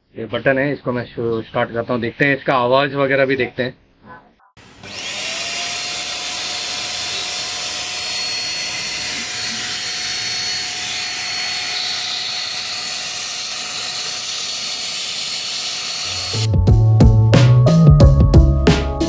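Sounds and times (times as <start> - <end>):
handheld vacuum cleaner whine: 4.6 - 16.5.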